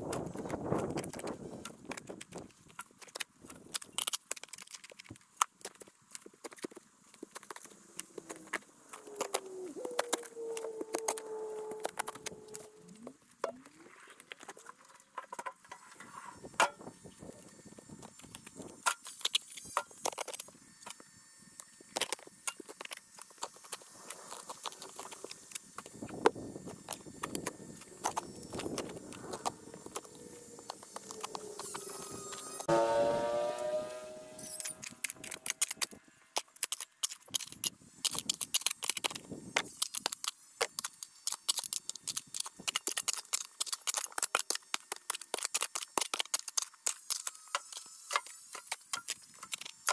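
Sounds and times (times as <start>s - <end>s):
shovel digging ground: 34.4s - 49.9s.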